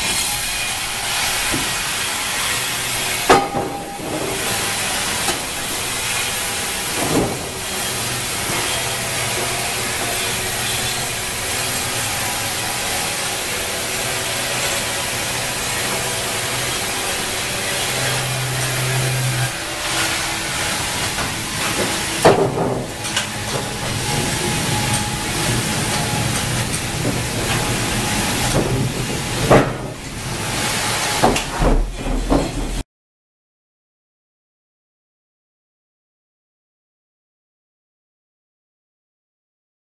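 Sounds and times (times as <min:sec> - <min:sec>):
wooden boards knocking: 0:28.5 - 0:30.0, 0:31.2 - 0:32.8.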